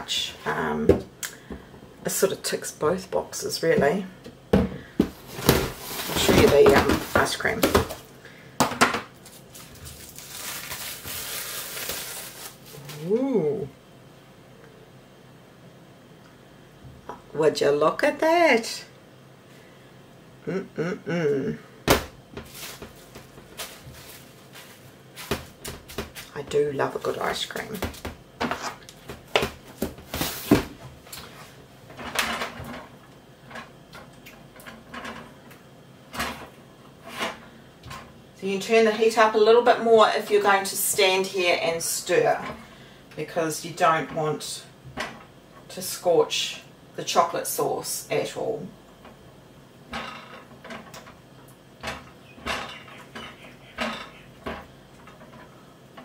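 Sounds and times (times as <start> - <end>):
kitchen knocks and clatters: 3.7 - 8.0, 21.9 - 30.9, 49.9 - 51.2, 51.8 - 55.5.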